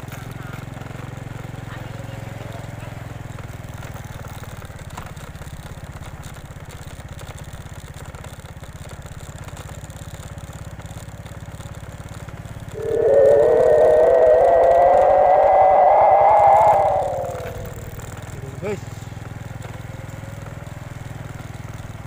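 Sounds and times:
motorcycle engine rumble: 10.8s - 22.0s
loud wavering tone: 12.7s - 18.3s.

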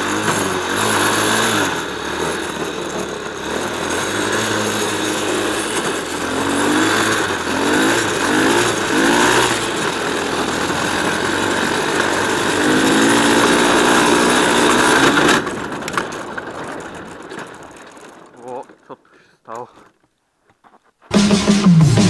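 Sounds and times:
small engine revving hard: 0.0s - 15.5s.

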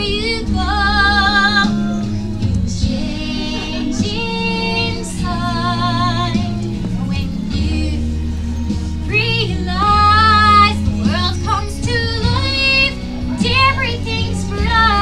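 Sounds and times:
singer breathing: 8.1s - 9.1s.

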